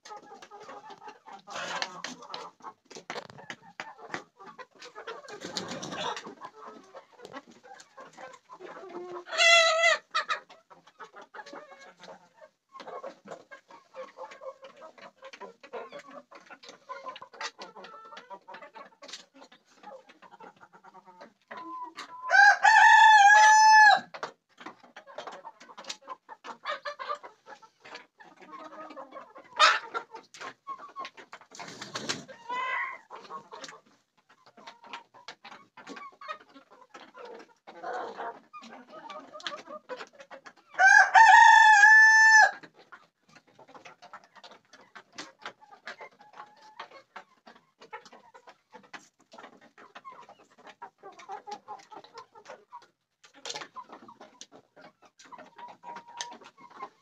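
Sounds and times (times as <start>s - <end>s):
chickens clucking: 0.0s - 57.0s
rooster crowing: 22.3s - 24.1s, 40.8s - 42.6s.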